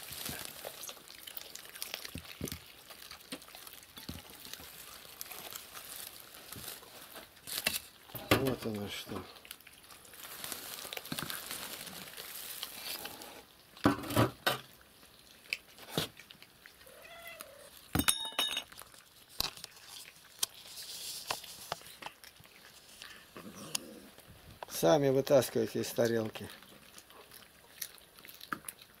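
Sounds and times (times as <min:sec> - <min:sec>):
cats chewing and crunching fish: 0:00.0 - 0:29.0
plates clinking on floor: 0:18.0 - 0:18.7.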